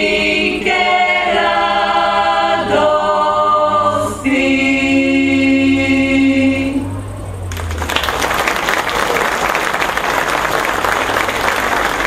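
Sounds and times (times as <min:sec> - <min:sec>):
women singing in close harmony: 0:00.0 - 0:07.0.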